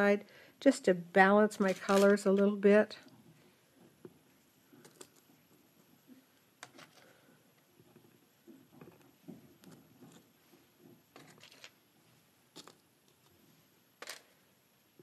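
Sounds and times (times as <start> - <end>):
soft handling rustle: 1.6 - 14.2.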